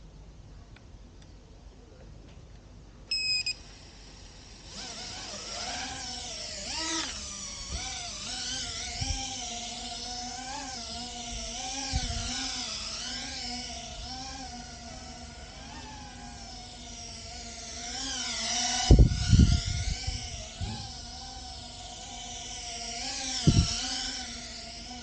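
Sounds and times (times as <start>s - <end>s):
high electronic beep: 3.1s - 3.6s
drone motors whining: 3.1s - 25.0s.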